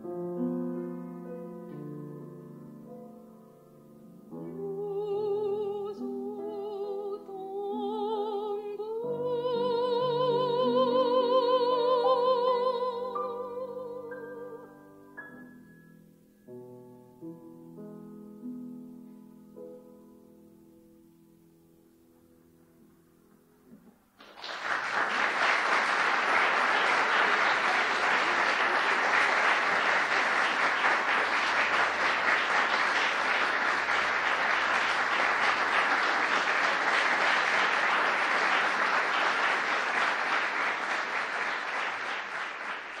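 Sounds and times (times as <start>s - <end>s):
audience applause: 24.2s - 43.0s.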